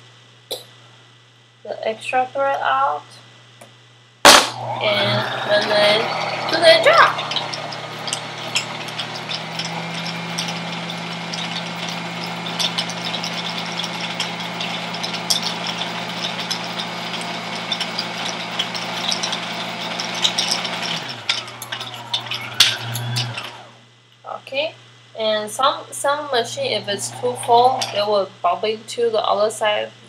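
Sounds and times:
sewing machine motor humming: 4.3 - 23.8, 26.0 - 28.1.

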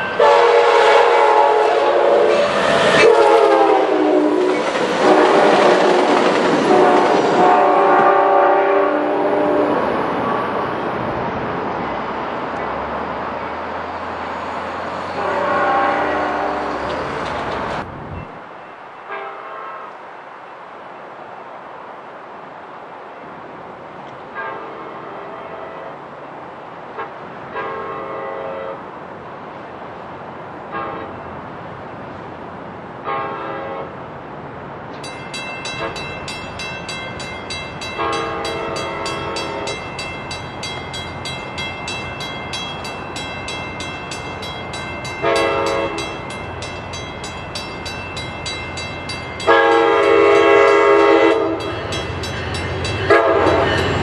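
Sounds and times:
train rumble: 0.0 - 54.0
train horn blasts: 0.1 - 10.6, 15.1 - 17.0, 19.0 - 20.0, 24.3 - 26.0, 27.0 - 28.9, 30.7 - 31.2, 33.0 - 33.9, 35.8 - 36.2, 37.8 - 40.2, 45.1 - 46.6, 48.5 - 54.0.

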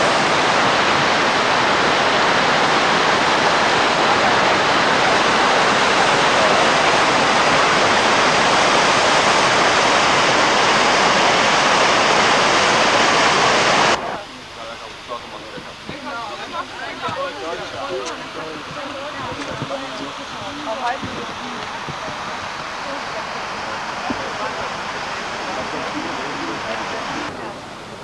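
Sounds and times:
river rapids roaring: 0.0 - 14.4.

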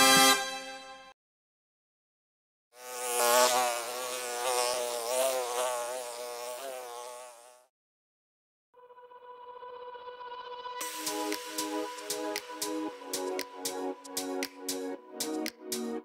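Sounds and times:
insect buzzing: 2.8 - 7.7.

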